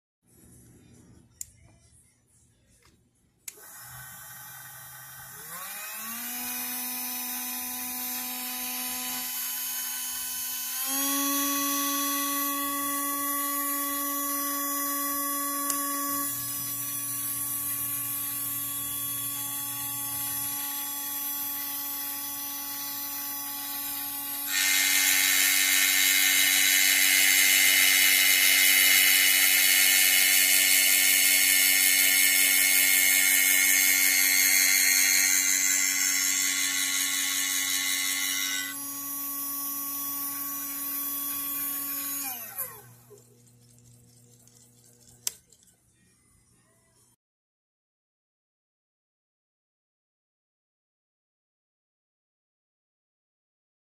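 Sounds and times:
electric motor whining: 3.5s - 43.4s
grinding wheel hissing: 16.4s - 38.8s.

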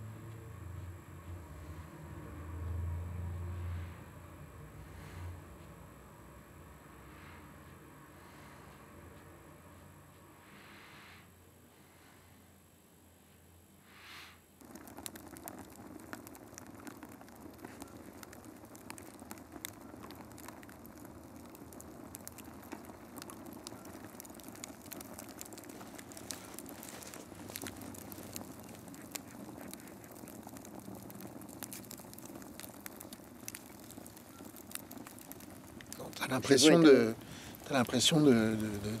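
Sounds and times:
fire crackling: 0.1s - 12.3s, 12.9s - 39.0s.

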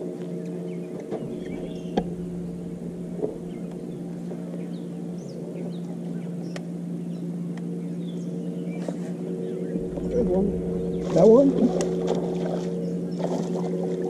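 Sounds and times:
electric trolling motor humming: 1.2s - 8.2s, 9.8s - 14.0s.

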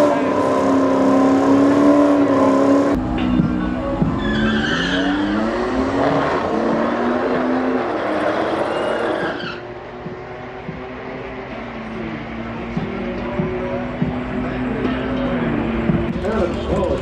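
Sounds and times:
car engine revving: 0.0s - 17.0s
high squeals: 4.2s - 5.6s, 8.2s - 9.7s.

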